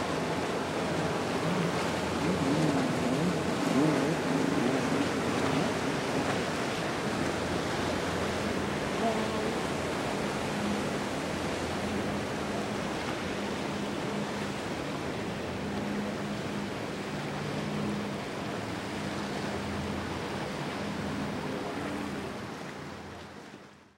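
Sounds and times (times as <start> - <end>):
wake and spray rushing: 0.0 - 12.2
low engine hum: 0.0 - 23.9.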